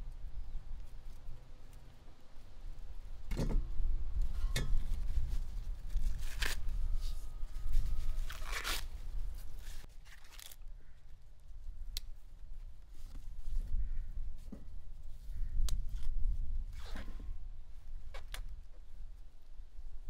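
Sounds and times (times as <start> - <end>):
dry corn husks tearing and crackling: 5.2 - 13.2.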